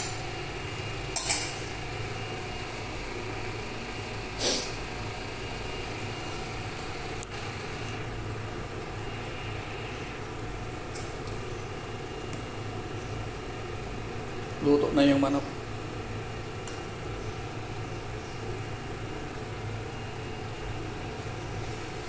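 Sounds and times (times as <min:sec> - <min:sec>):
steady low hum: 0:00.0 - 0:22.0
hiss: 0:04.4 - 0:04.8.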